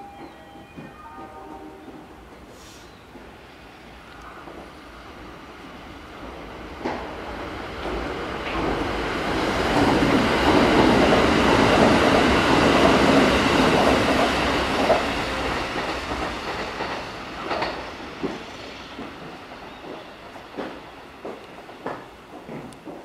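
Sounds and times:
electric train passing at speed: 0:00.0 - 0:23.0
faint wheel clacks over rail joints: 0:12.7 - 0:23.0.

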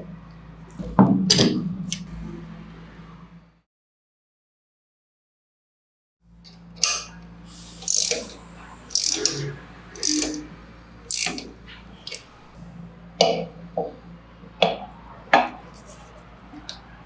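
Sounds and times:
ratcheting spanner clicking: 0:07.8 - 0:09.4, 0:10.0 - 0:10.5, 0:11.1 - 0:12.4.

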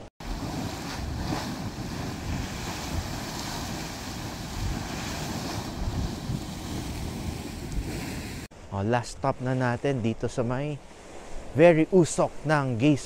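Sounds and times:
geyser spraying water and steam: 0:00.2 - 0:08.5
wind buffeting microphone: 0:00.2 - 0:08.5.

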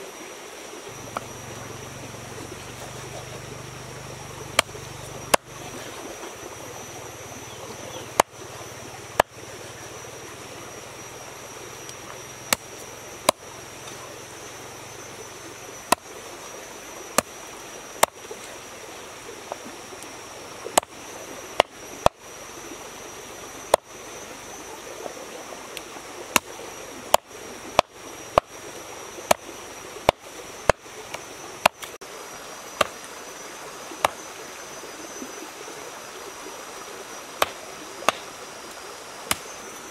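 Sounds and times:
stream rushing: 0:00.0 - 0:24.9.

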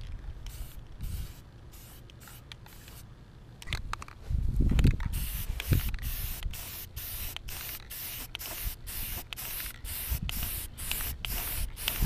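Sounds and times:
spray paint can hissing: 0:00.5 - 0:03.1, 0:05.1 - 0:12.0.

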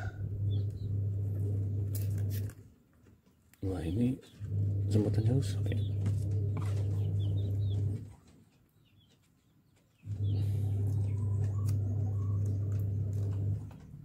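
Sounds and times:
steady low hum: 0:00.0 - 0:02.8, 0:03.6 - 0:08.3, 0:10.0 - 0:14.0
bird chirps: 0:05.6 - 0:12.5.

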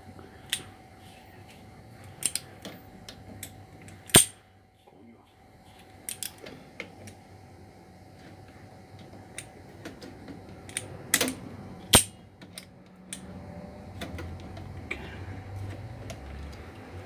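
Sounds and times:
pliers clicking and tapping on metal: 0:06.1 - 0:06.4, 0:10.6 - 0:13.3.

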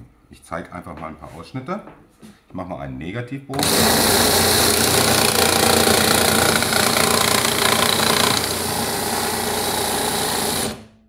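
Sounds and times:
drill-driven slate cutter cutting: 0:03.6 - 0:11.0.

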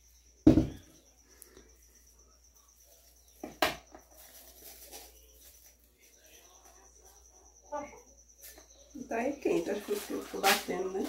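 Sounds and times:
heavy thump: 0:00.5 - 0:00.9.

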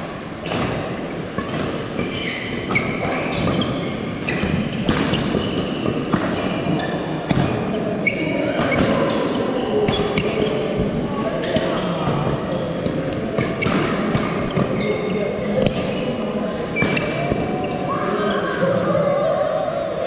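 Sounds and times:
rackets striking shuttlecock: 0:00.4 - 0:07.7
shoes squeaking on floor: 0:01.8 - 0:18.5.

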